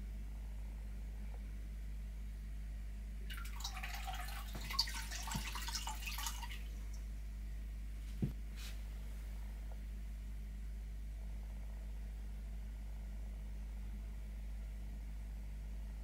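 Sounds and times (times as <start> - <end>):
steady low hum: 0.0 - 16.0
water trickling and dripping: 3.3 - 7.2.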